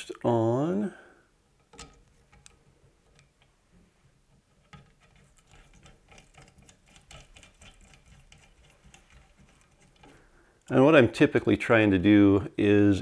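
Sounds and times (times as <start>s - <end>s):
arrow rest clicking and rattling: 1.6s - 3.5s.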